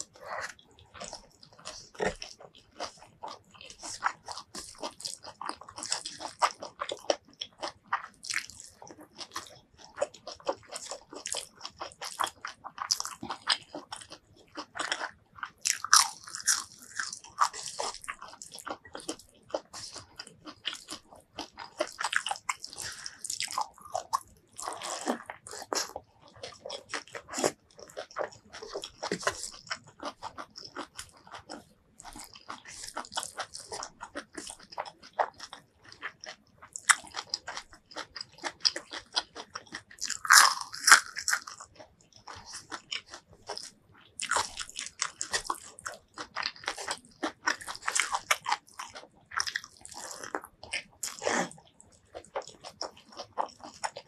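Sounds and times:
chewing crunchy food: 0:00.0 - 0:54.0.

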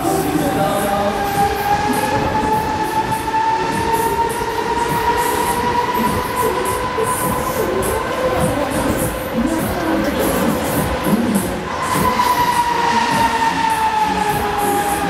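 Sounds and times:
fairground ride rumbling and rattling: 0:00.0 - 0:15.0
rising whine: 0:00.0 - 0:15.0.

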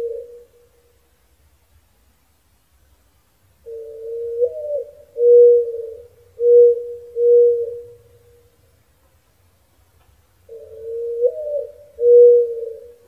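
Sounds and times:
mourning dove cooing: 0:00.0 - 0:01.0, 0:03.6 - 0:08.7, 0:10.4 - 0:13.0.

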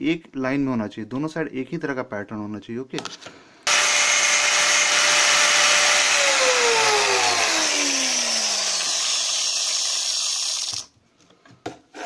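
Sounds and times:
cut-off disc grinding metal: 0:03.7 - 0:10.9.

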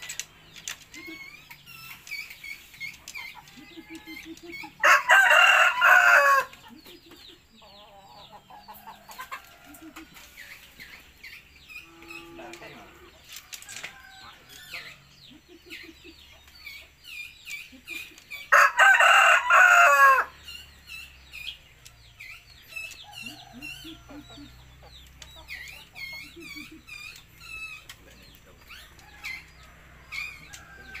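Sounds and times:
small birds chirping: 0:00.0 - 0:31.0
rooster crowing: 0:04.8 - 0:06.5, 0:18.5 - 0:20.4.

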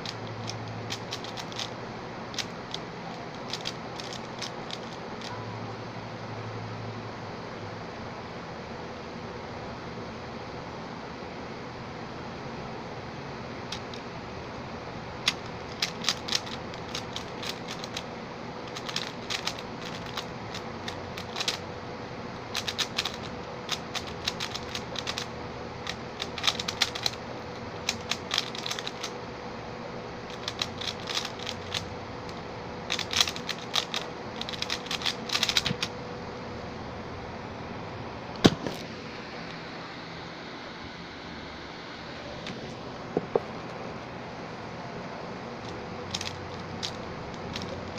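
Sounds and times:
puzzle cube clicking: 0:00.0 - 0:01.8, 0:02.4 - 0:05.3, 0:13.7 - 0:14.0, 0:15.2 - 0:18.1, 0:18.7 - 0:21.6, 0:22.5 - 0:27.2, 0:27.8 - 0:29.1, 0:30.3 - 0:35.9, 0:45.6 - 0:47.9
hand knocking keyboard: 0:43.2 - 0:43.5.

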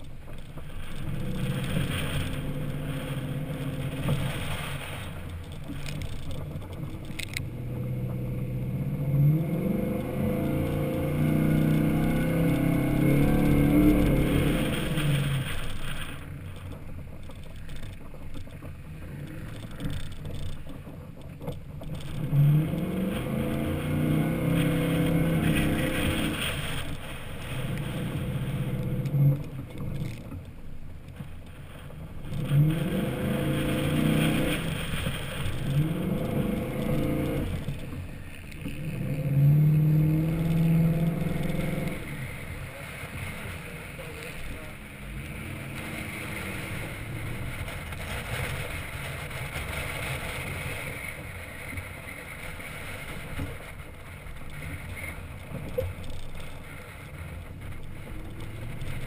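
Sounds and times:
truck engine revving: 0:00.3 - 0:16.3, 0:21.8 - 0:30.4, 0:31.8 - 0:51.0.

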